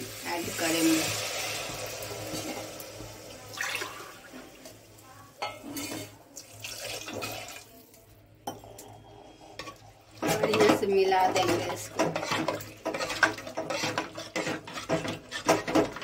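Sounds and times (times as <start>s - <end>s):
water poured into a pot: 0.0s - 5.0s, 5.8s - 8.0s.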